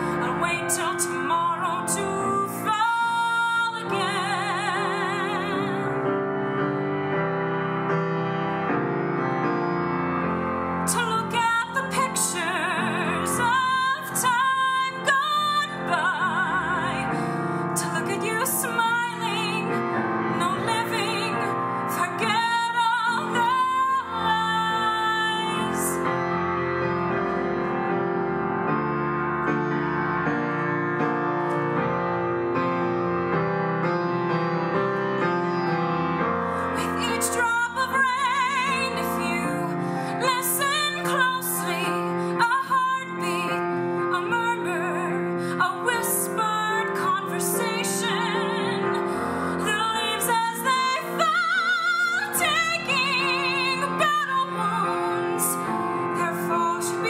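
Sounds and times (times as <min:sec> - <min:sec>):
woman singing with vibrato: 0:00.0 - 0:06.0, 0:10.9 - 0:26.0, 0:36.8 - 0:57.0
piano accompaniment: 0:00.0 - 0:57.0.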